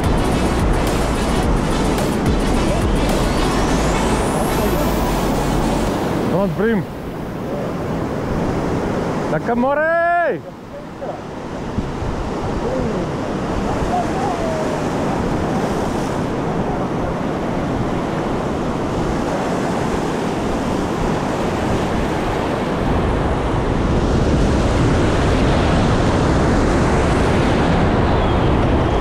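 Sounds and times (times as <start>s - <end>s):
surf washing on rocky shore: 0.0s - 29.0s
wind on microphone: 10.6s - 29.0s.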